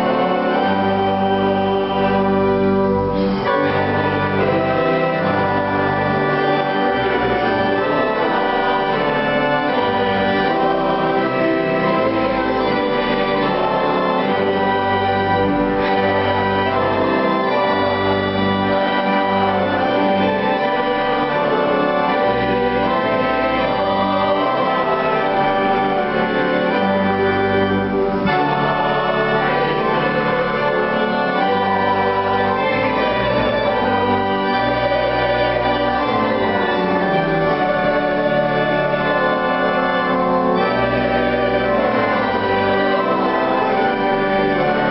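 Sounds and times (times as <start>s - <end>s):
piano accompaniment: 0.0s - 44.9s.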